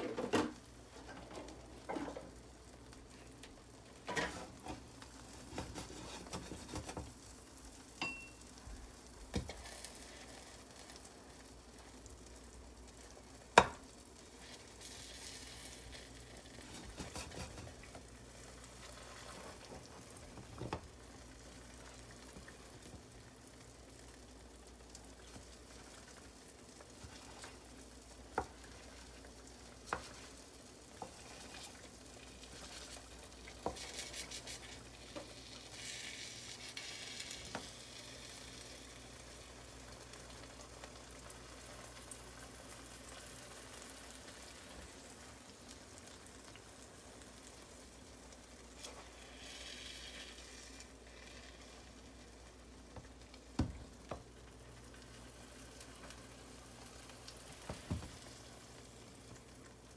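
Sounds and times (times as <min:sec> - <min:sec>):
egg pancake sizzling in frying pan: 0:00.1 - 0:59.9
wooden spatula scraping pan: 0:04.1 - 0:07.1, 0:16.5 - 0:17.9.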